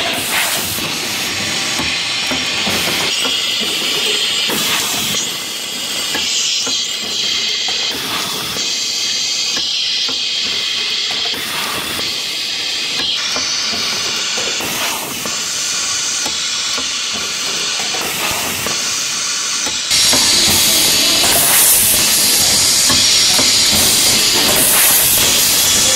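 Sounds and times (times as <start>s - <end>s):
machine hissing: 0.0s - 25.9s
rapid mechanical clicking: 12.9s - 25.9s.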